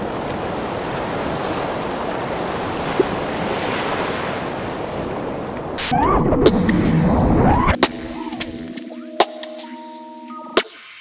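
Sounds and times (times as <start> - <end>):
wind: 0.0 - 9.8
sea surf: 0.0 - 11.0
warbling wavering sounds: 5.8 - 8.7.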